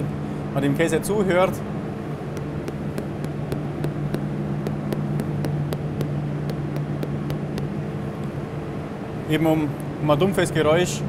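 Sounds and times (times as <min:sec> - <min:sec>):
steady low hum: 0:00.0 - 0:11.0
hammer tapping cheese rind: 0:02.3 - 0:07.8.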